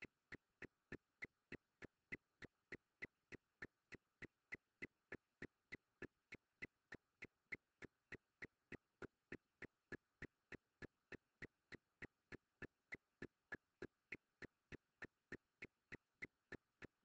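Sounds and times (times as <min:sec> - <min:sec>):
faint ticking clicks: 0:00.0 - 0:17.0.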